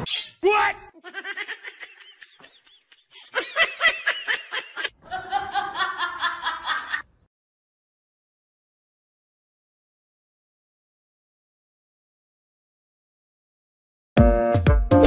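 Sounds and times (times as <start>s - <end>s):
person laughing: 1.0s - 7.0s.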